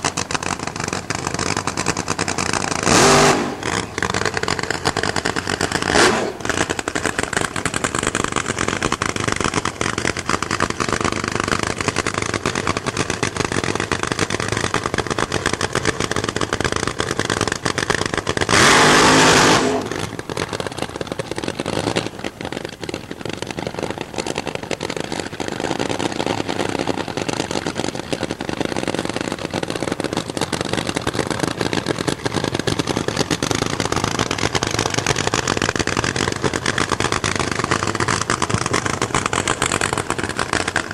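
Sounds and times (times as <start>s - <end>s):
drag racing engine idling roughly: 0.0s - 40.9s
engine revving at full throttle: 0.1s - 20.8s.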